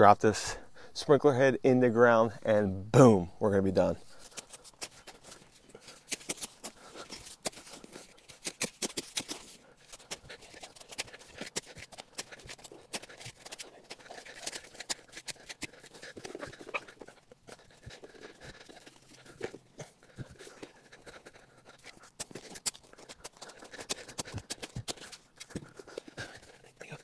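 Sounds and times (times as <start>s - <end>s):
loose dirt crunching: 0.0s - 26.7s
shovel scraping into soil: 4.1s - 13.6s.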